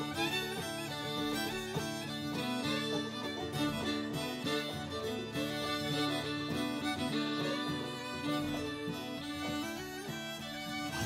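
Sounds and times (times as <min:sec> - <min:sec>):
fiddle music: 0:00.0 - 0:11.0.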